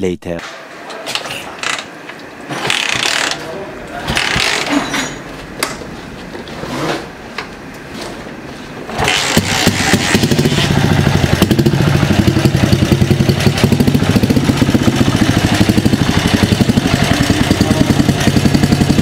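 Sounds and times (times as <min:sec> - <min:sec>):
motorcycle kickstarter ratcheting: 0:02.6 - 0:03.4, 0:04.1 - 0:04.7
motorcycle engine firing: 0:04.1 - 0:04.7, 0:08.9 - 0:19.0.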